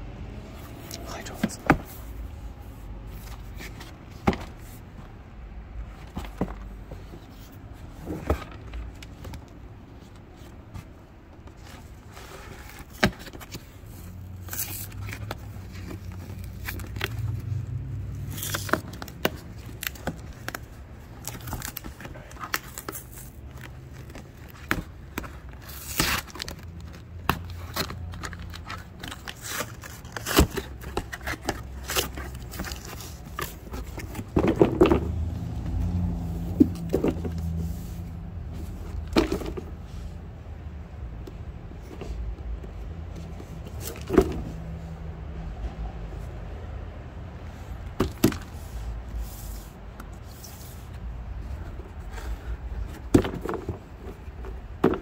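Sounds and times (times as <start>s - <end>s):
cardboard scraping and knocking: 3.2s - 5.1s, 5.8s - 9.2s, 29.2s - 39.8s, 51.5s - 55.0s
cardboard and tape tearing: 25.6s - 34.2s.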